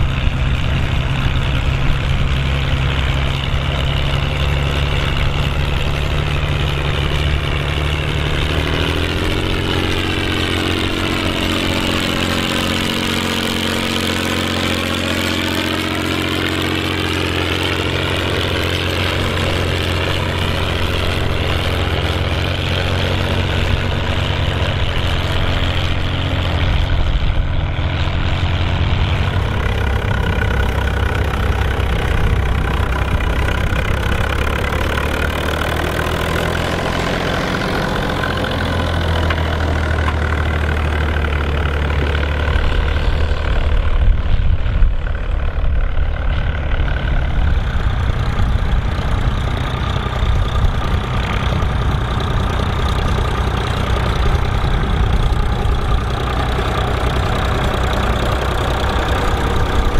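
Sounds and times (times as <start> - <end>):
tractor diesel engines under load: 0.0 - 59.9.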